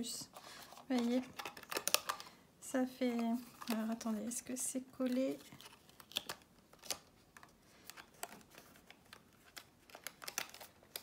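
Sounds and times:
plastic box crinkling and clicking: 0.9 - 2.3, 5.6 - 11.0.

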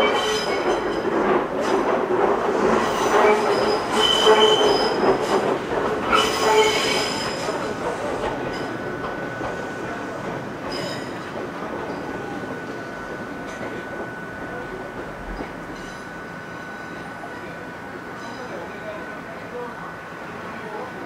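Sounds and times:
train wheels squealing: 0.0 - 1.1, 2.8 - 5.4, 6.0 - 7.8, 8.5 - 14.6
train rumble and clatter: 0.0 - 21.0.

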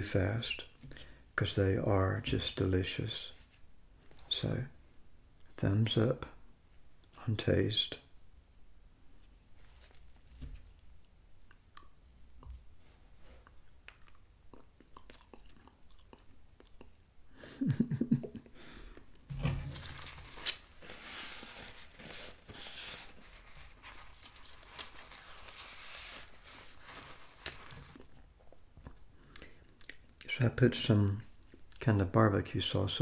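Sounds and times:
chewing with wet mouth clicks: 13.5 - 17.1, 29.3 - 30.2
paper napkin rustling: 19.3 - 28.1.

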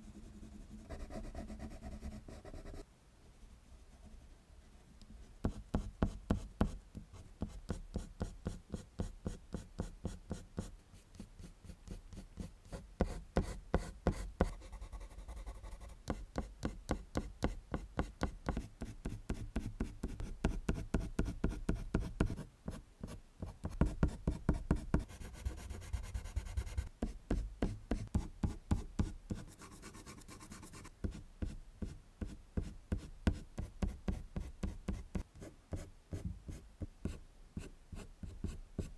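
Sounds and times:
pencil scratching on paper: 23.6 - 31.5.

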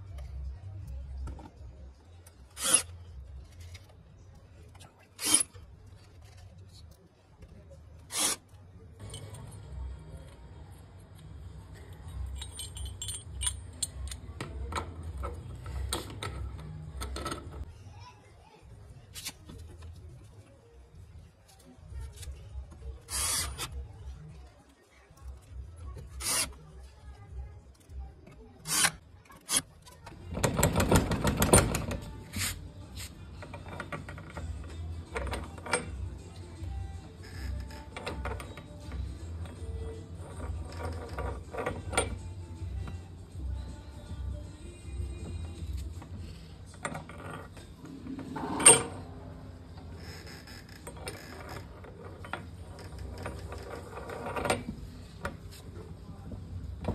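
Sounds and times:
metal rubbing and clicks: 1.2 - 7.0, 10.2 - 17.7, 23.0 - 23.9, 25.2 - 26.7, 27.7 - 44.2, 45.2 - 56.9
metal latch rattling and clicking: 30.3 - 32.2
metal latch scraping and clanking: 30.3 - 36.1, 40.2 - 42.2, 46.7 - 55.5
metal latch clanking: 47.9 - 49.1.

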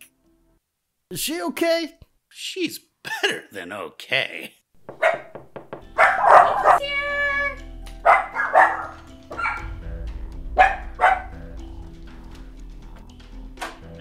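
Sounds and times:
dog barking: 5.0 - 5.4, 6.0 - 6.8, 8.0 - 9.6, 10.6 - 11.4
background music: 5.0 - 14.0.

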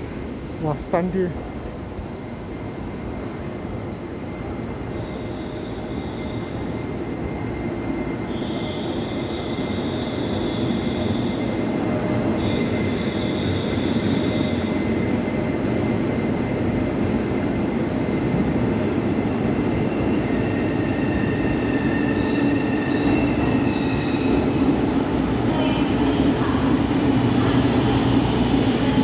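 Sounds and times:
train rumble and rolling: 0.0 - 29.0
high brake squeals: 4.9 - 6.9, 7.6 - 15.0, 20.0 - 24.6.

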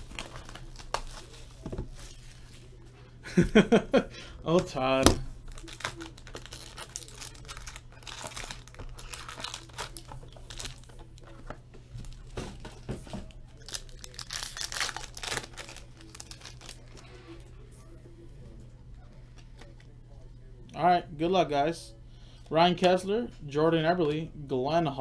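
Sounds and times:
foil pack crinkling and tearing: 0.0 - 2.7, 5.4 - 11.3, 13.5 - 17.2.

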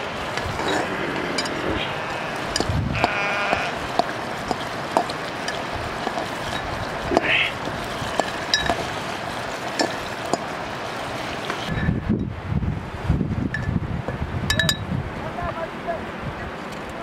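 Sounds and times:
sheep bleating: 0.8 - 3.8.

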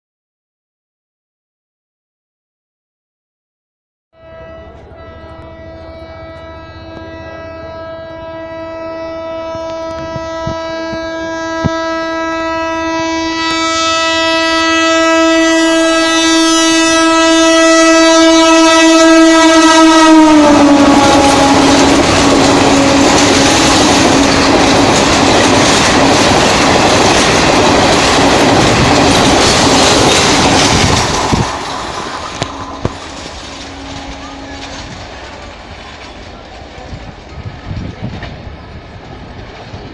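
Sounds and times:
train horn blast: 4.1 - 27.3, 27.9 - 35.4
clickety-clack of train coaches: 9.6 - 11.8, 19.4 - 39.9
train rushing past: 16.0 - 39.9.

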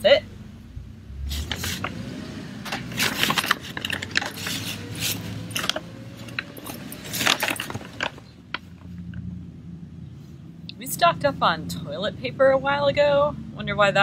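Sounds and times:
paper bag crinkling and rustling: 2.7 - 8.3.

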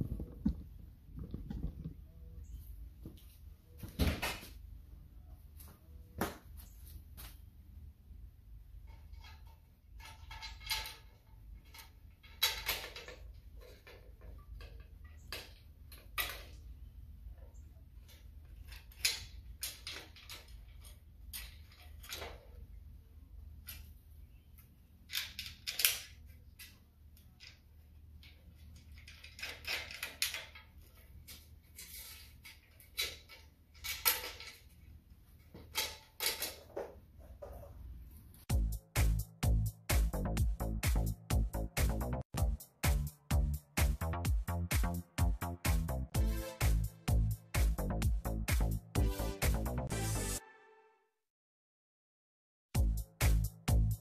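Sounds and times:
ladder leg clicks and metal knocks: 8.8 - 16.6.

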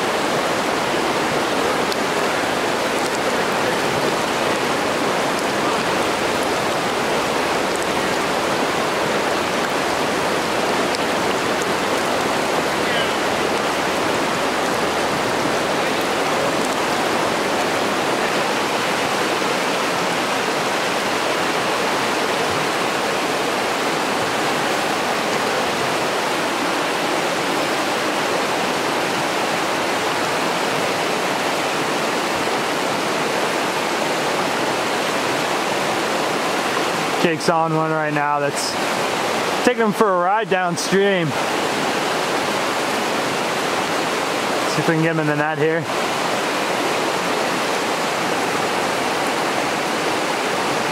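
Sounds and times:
river water rushing over rocks: 0.0 - 50.9.

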